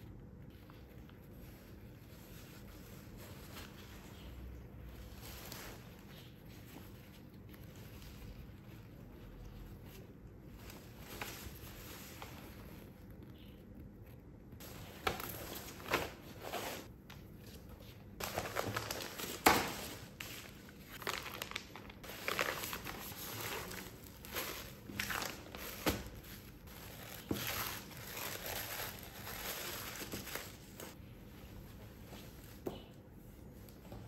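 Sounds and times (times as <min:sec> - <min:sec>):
plastic and paper crinkling: 0:00.5 - 0:31.0.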